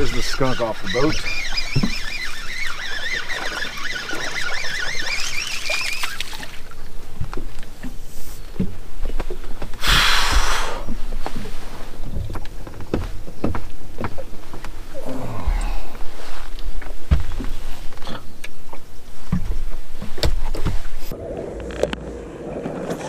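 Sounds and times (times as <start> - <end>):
fishing rod and reel clicks: 0.0 - 6.8
high wavering chirps: 0.2 - 6.5.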